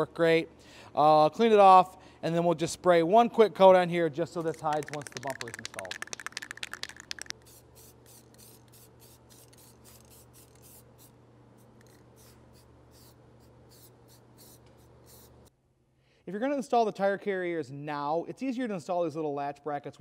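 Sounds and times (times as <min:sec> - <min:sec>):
spray paint can hissing bursts: 0:04.5 - 0:15.4.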